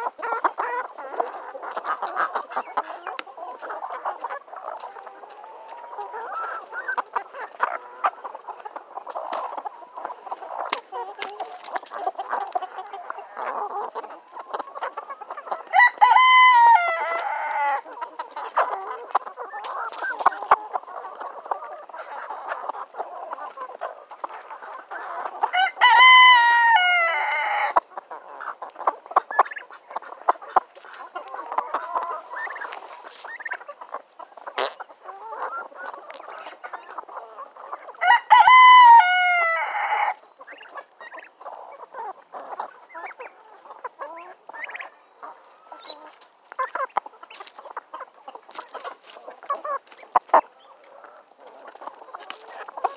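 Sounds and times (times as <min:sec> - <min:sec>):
hens clucking: 0:00.0 - 0:52.9
pecking clicks on ground: 0:10.6 - 0:12.6
rooster crowing: 0:15.7 - 0:17.8, 0:25.5 - 0:27.8, 0:38.0 - 0:40.2.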